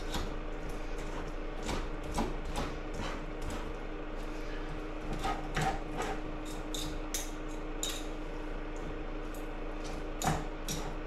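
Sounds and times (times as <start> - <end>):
forks scraping on cutting board: 1.0 - 3.8, 4.4 - 7.0.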